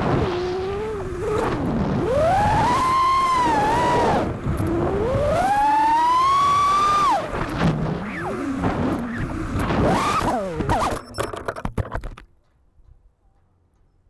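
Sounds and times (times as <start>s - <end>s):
quadcopter motors whining: 0.0s - 11.1s.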